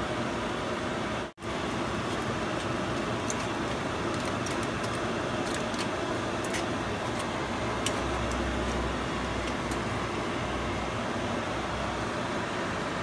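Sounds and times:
fan-like noise: 0:00.0 - 0:13.0
aluminium foil crinkling: 0:01.6 - 0:09.9.

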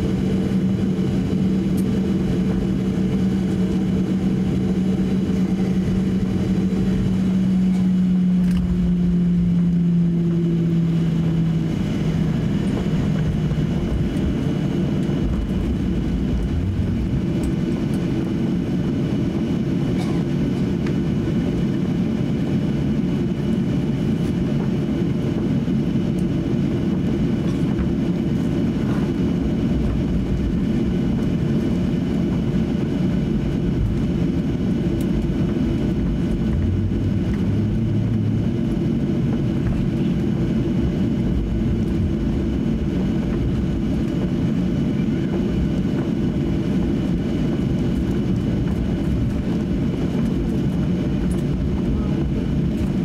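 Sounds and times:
low rolling rumble: 0:00.0 - 0:19.4, 0:26.6 - 0:53.0
jet engines humming at idle: 0:00.0 - 0:53.0
droning tone: 0:26.1 - 0:53.0.

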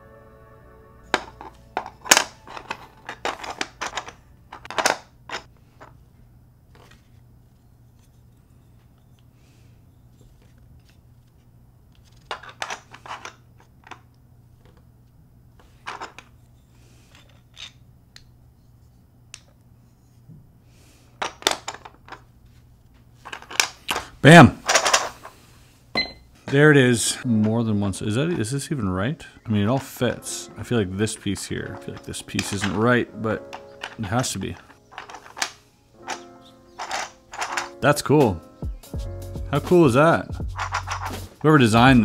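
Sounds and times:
plastic puzzle pieces clicking: 0:01.2 - 0:05.9, 0:17.1 - 0:18.3, 0:23.2 - 0:24.1, 0:31.3 - 0:37.8, 0:40.6 - 0:41.3.

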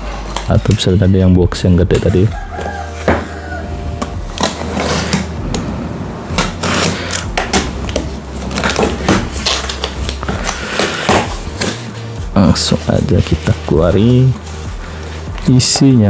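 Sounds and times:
box cutter slitting tape: 0:04.0 - 0:05.4, 0:06.3 - 0:11.9
cardboard flaps scraping and rustling: 0:04.3 - 0:05.4, 0:06.4 - 0:15.9.

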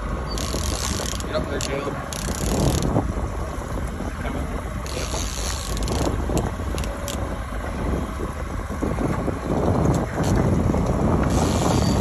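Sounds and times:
outboard motor running: 0:00.0 - 0:12.0
wind: 0:00.0 - 0:12.0.

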